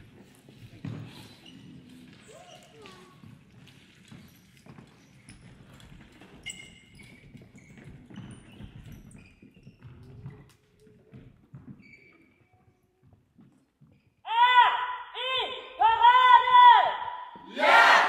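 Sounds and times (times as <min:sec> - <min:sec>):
short squeaks: 0:06.4 - 0:09.8, 0:11.8 - 0:12.5.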